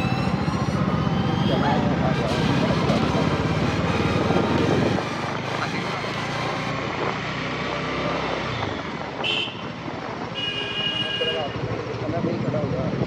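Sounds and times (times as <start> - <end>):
wind rush on microphone: 2.5 - 5.9, 11.7 - 13.0.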